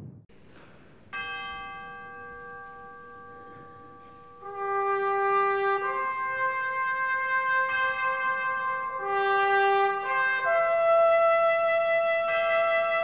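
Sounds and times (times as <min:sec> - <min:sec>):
held chord: 0:00.5 - 0:13.0
trumpet long note: 0:03.1 - 0:13.0.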